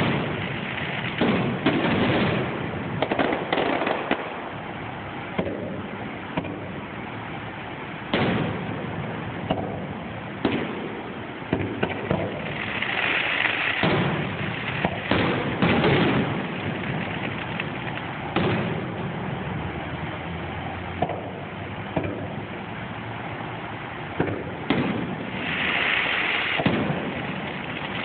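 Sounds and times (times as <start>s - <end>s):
fireworks bangs: 0.0s - 28.0s
fireworks hissing crackle: 0.0s - 28.0s.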